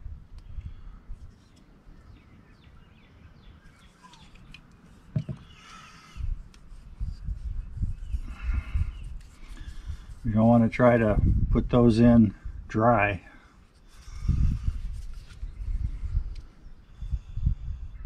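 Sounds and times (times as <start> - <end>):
birds chirping: 1.3 - 6.4, 7.0 - 10.9.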